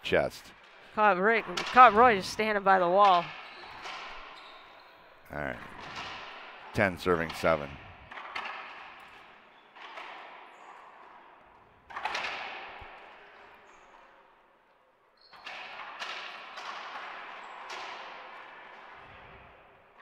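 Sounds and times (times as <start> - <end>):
ball hitting court walls: 0.6 - 14.1, 15.3 - 19.7
racquet smacking ball: 1.4 - 4.4.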